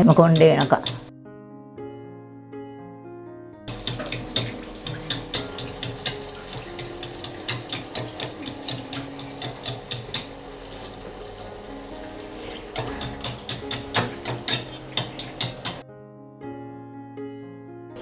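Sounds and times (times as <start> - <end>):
batter frying in hot oil: 0.3 - 1.1, 3.7 - 15.8.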